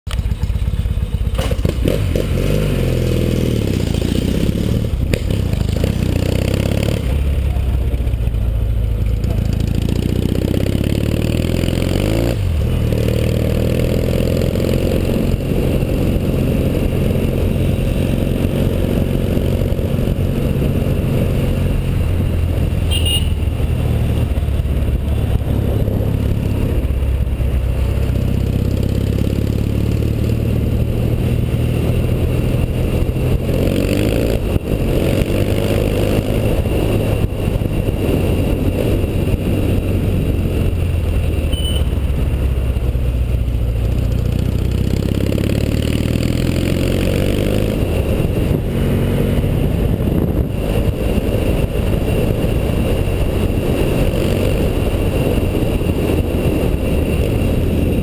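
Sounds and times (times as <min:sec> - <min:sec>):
motorcycle engine revving: 0:00.1 - 0:58.0.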